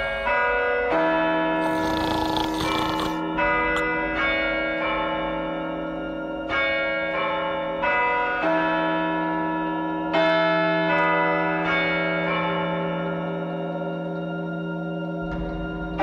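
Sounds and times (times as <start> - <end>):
bells ringing: 0.0 - 1.5.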